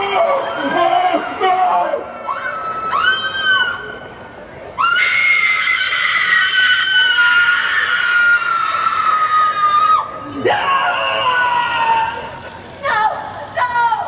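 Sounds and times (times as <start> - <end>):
high-pitched screaming: 4.8 - 14.0.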